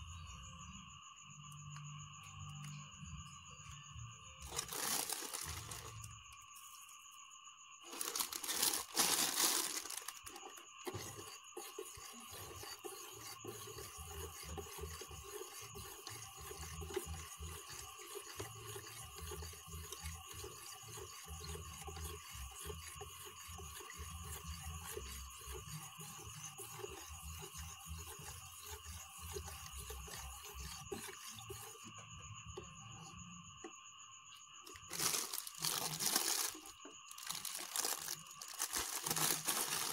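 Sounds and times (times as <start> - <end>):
plastic spoon stirring and scraping: 4.4 - 6.8, 7.8 - 33.6, 34.7 - 39.9
granules poured into plastic tub: 7.9 - 10.2, 34.9 - 39.9.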